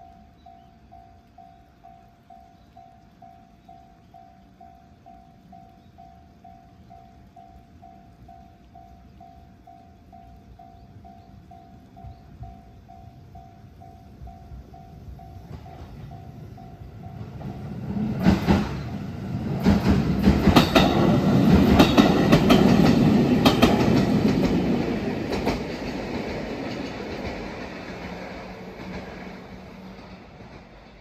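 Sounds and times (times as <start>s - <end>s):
train wheels clacking over rail joints: 17.1s - 31.0s.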